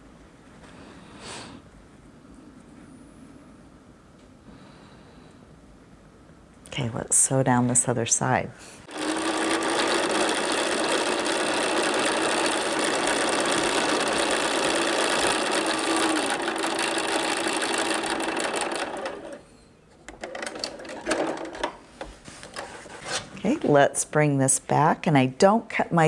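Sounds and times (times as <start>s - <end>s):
sewing machine stitching: 8.9s - 19.4s.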